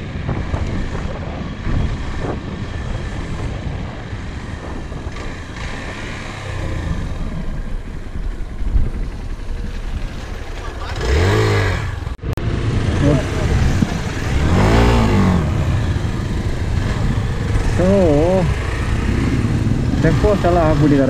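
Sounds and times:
vehicle engine and road noise: 0.0 - 21.0.

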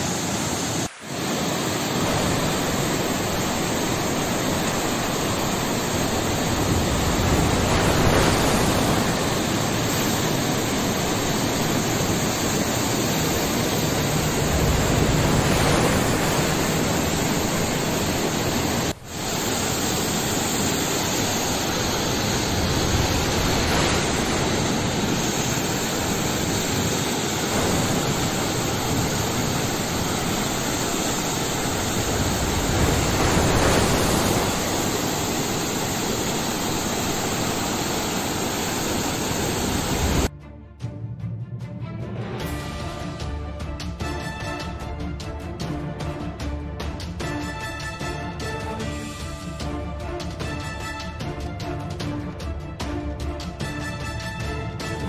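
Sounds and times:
water rushing over road edge: 0.9 - 40.3.

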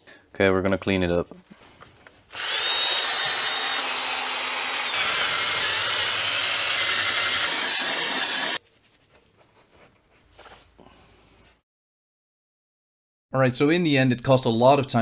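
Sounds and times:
drill wire brush scrubbing metal: 2.4 - 8.6.

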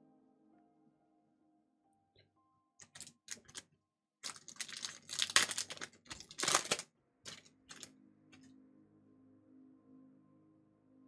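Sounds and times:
foil packaging crinkling: 2.8 - 7.9.

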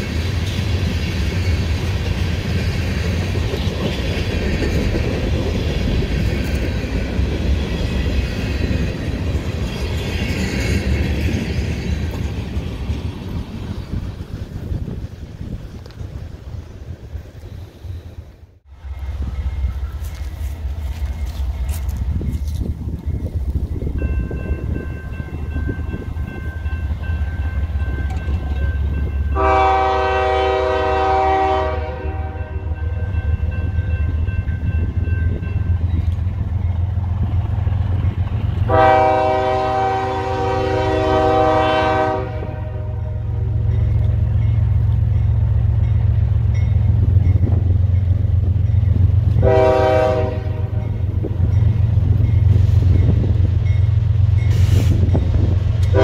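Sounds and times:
train rumble: 0.0 - 56.0
locomotive horn blasts: 29.3 - 32.9, 38.7 - 43.4, 49.4 - 51.0.

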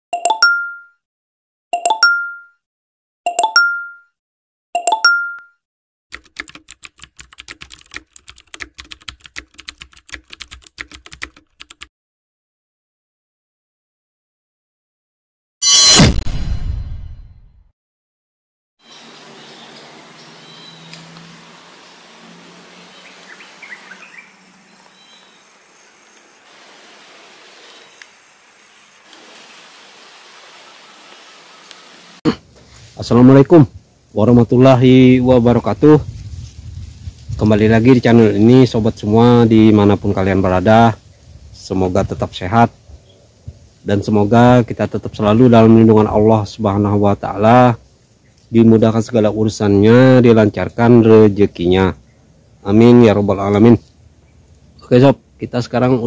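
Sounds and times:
keyboard typing: 6.1 - 11.9.

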